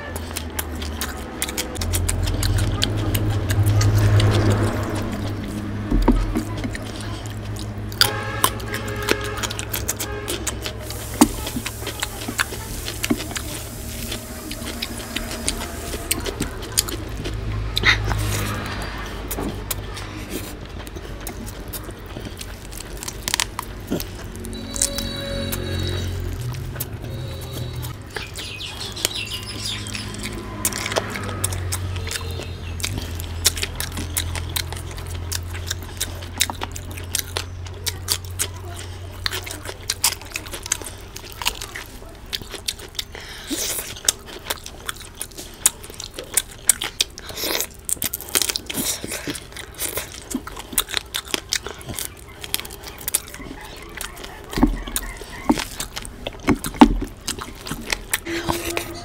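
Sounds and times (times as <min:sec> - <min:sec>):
biting chicken on the bone: 0:00.0 - 0:58.8
lip smacks: 0:00.0 - 0:58.9
wet chewing: 0:00.0 - 0:59.0
low drone: 0:10.8 - 0:19.8, 0:22.4 - 0:32.0.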